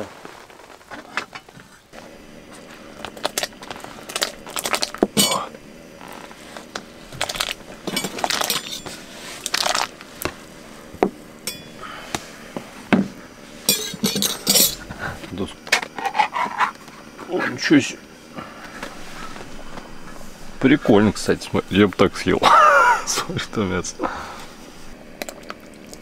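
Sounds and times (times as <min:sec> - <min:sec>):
rustling: 0:06.0 - 0:17.3, 0:18.6 - 0:22.3
cookware clinking and scraping: 0:07.8 - 0:09.0, 0:11.5 - 0:11.8, 0:13.6 - 0:14.8.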